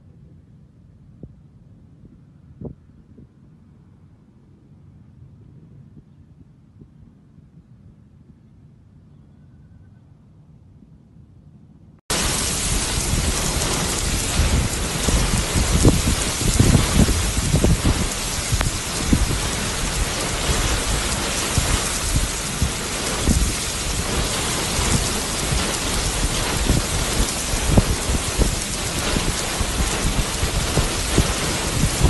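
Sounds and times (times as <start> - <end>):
wind buffeting microphone: 0.0 - 8.1, 12.1 - 32.0
heavy rain pouring: 12.1 - 32.0.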